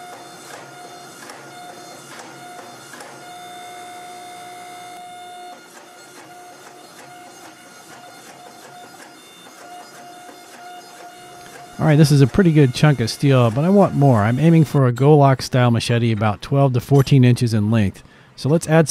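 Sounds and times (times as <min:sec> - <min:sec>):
hydraulic press whine: 0:00.0 - 0:15.1.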